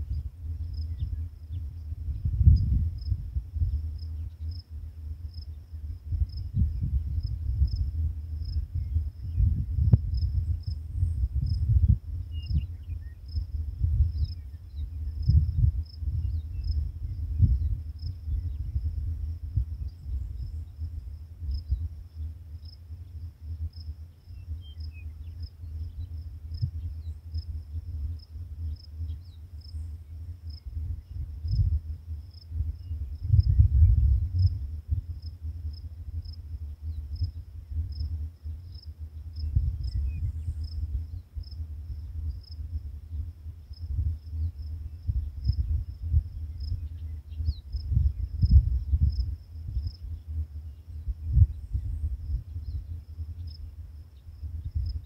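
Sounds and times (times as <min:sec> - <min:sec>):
cricket chirping: 0:00.0 - 0:55.0
faint steady hum: 0:00.0 - 0:55.0
wind rumbling on microphone: 0:00.0 - 0:55.0.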